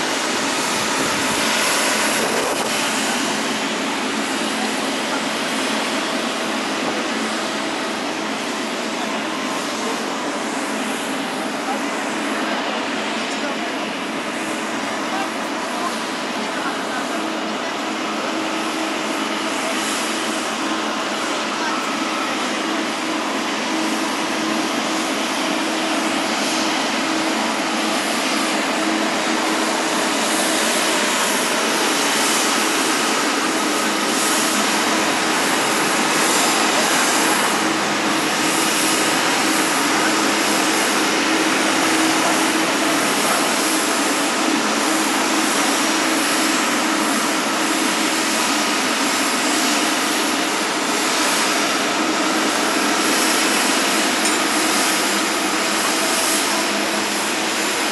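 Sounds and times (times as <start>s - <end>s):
jet airliner engines running: 0.0s - 57.9s.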